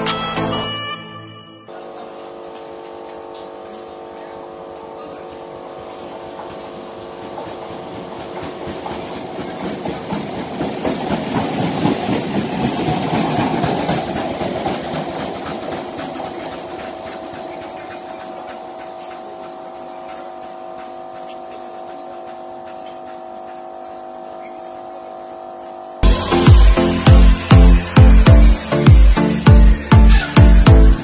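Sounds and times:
diesel engine drone: 1.7 - 10.8, 13.9 - 31.0
wheels clattering over rail joints: 5.8 - 23.7.

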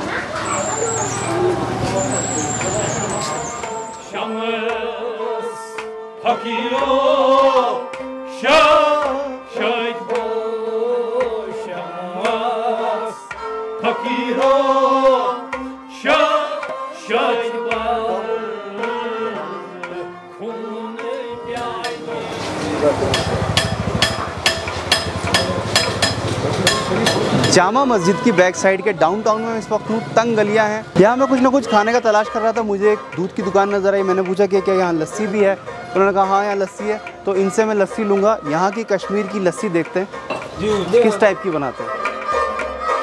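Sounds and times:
street noise: 0.0 - 43.0
music with drum beat: 21.0 - 28.2.

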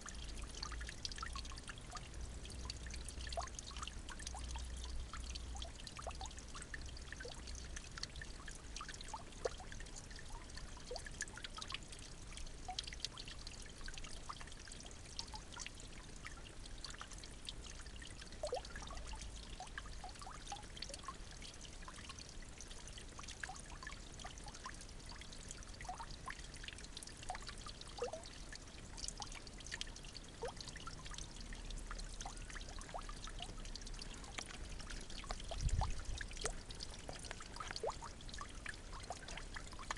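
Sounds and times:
small drips and splashes: 0.0 - 39.9
water trickling: 0.0 - 39.9.

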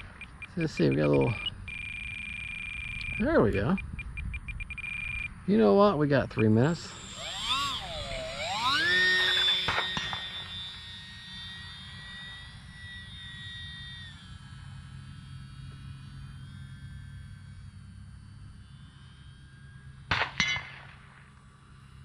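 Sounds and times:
low wind noise: 0.0 - 9.4
electric model plane motor whining: 0.0 - 20.1, 21.3 - 22.0.

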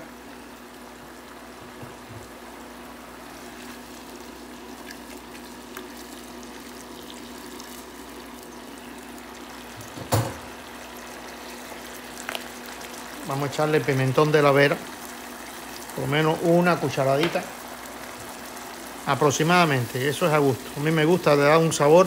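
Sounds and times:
vegetables sizzling in a frying pan: 0.0 - 22.0.

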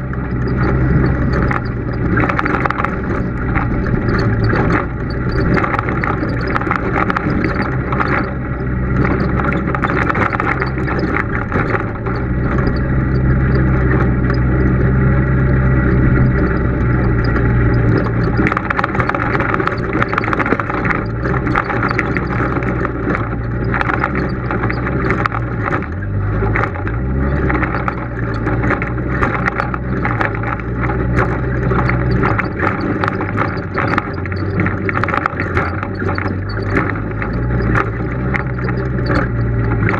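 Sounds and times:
knocks and rattles over rocks: 0.0 - 39.9
vehicle engine running: 0.0 - 39.9.

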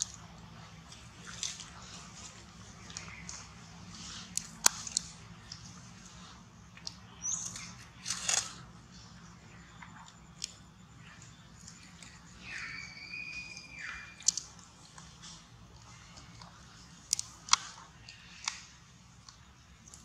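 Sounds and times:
whistled call: 12.4 - 14.4.

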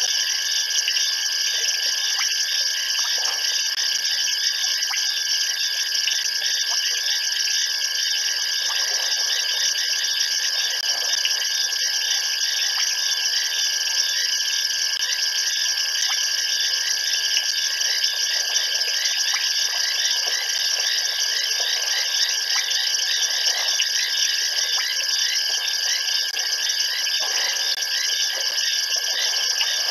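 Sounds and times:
insects trilling at night: 0.0 - 29.9.

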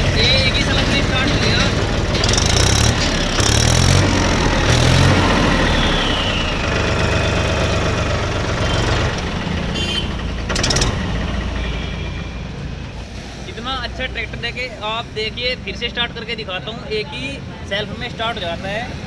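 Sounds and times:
diesel tractor engine running: 0.0 - 14.6
sharp clatter: 0.2 - 6.5, 8.2 - 12.1.

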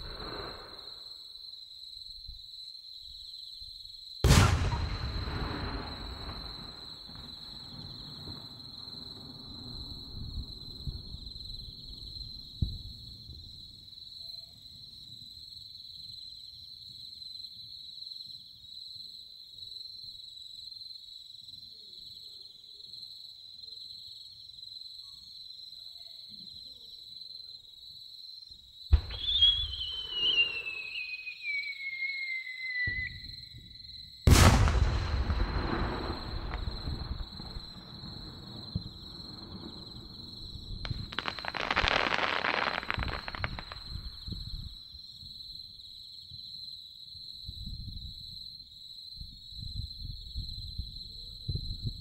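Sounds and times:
firework launch thump: 4.2 - 7.4
firework burst rumble: 4.2 - 11.6, 34.3 - 44.5
insects trilling: 19.7 - 47.5
firework whistle: 28.9 - 38.7, 40.8 - 44.1.

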